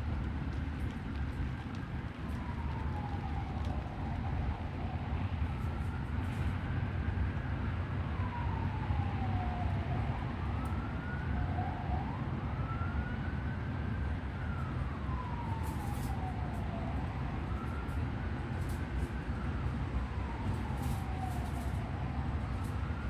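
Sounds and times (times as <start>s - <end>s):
steady low rumble: 0.0s - 8.7s
emergency siren wailing: 0.0s - 23.0s.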